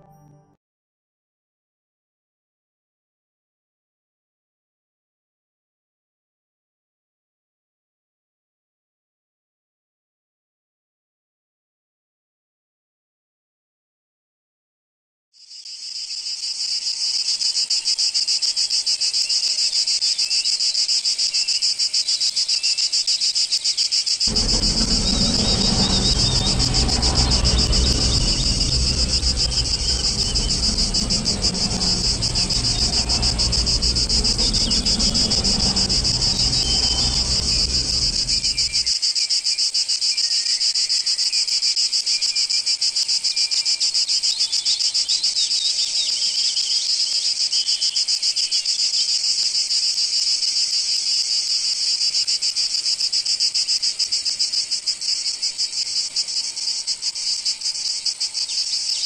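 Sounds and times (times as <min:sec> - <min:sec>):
insects buzzing: 0:24.2 - 0:38.9
low rumble: 0:24.3 - 0:38.9.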